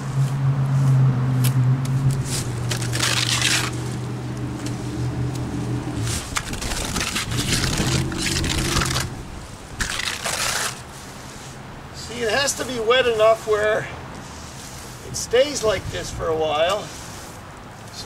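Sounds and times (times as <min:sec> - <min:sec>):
trowel scraping wet stucco: 0:02.3 - 0:04.0, 0:06.0 - 0:11.6.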